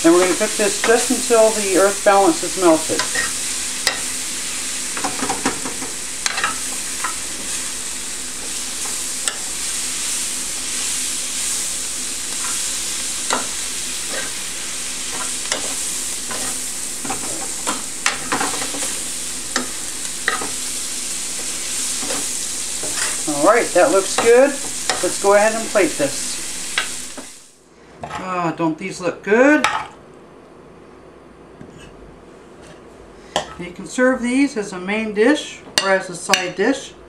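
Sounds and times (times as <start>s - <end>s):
vegetables sizzling in a skillet: 0.0s - 27.6s.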